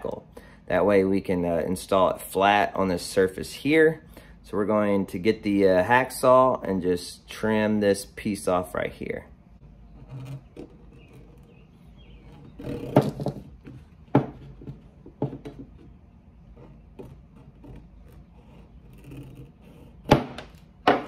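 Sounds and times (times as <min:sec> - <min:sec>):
hacksaw cutting plastic: 0:09.9 - 0:13.5, 0:16.5 - 0:21.0.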